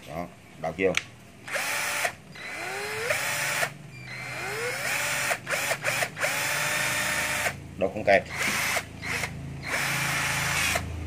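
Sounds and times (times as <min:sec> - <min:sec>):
cordless drill motor whining: 0:01.5 - 0:07.6, 0:08.3 - 0:10.9.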